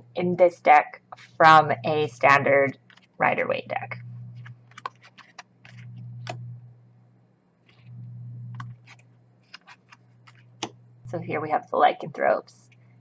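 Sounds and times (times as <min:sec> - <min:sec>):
low steady hum: 0:00.0 - 0:13.0
cards clicking and tapping: 0:04.4 - 0:06.4, 0:08.6 - 0:10.8.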